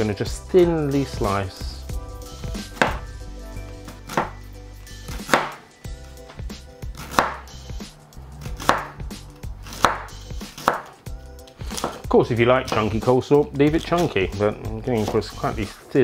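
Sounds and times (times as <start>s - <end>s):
knife slicing cabbage on board: 3.9s - 4.4s, 5.1s - 5.6s, 6.9s - 7.5s, 8.4s - 9.0s, 9.6s - 13.0s, 14.9s - 15.8s.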